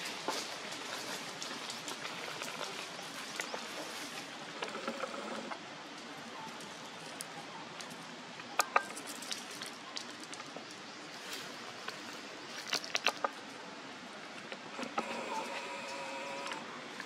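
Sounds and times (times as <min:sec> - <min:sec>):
monkey sipping water: 0:00.3 - 0:05.6, 0:12.6 - 0:13.5.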